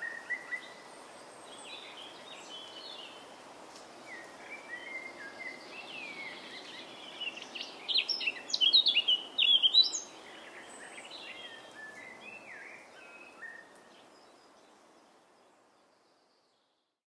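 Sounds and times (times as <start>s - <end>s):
birds chirping and calling: 4.2s - 13.8s.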